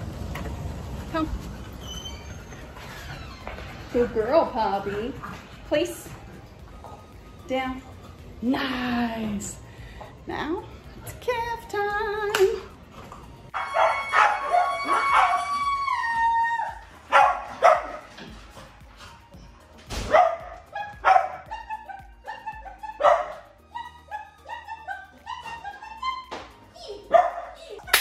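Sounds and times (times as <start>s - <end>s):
background music: 2.6s - 28.0s
small dogs barking: 17.1s - 18.1s, 20.1s - 26.1s.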